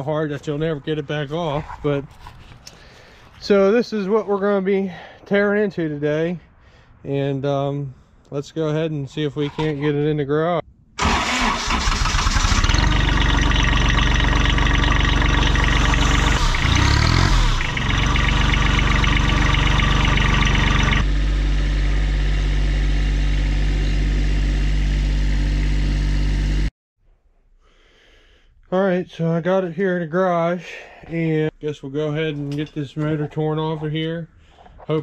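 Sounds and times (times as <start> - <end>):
tractor engine running: 11.0 - 26.7.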